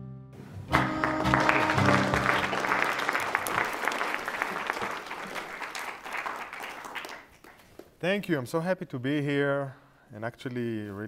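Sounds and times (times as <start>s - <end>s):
held music chord: 0.0s - 3.0s
audience applauding: 0.7s - 7.9s.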